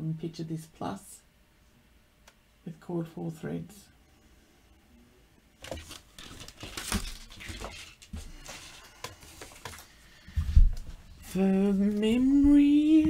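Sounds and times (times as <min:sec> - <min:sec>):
material rustling and crinkling: 0:05.6 - 0:12.9.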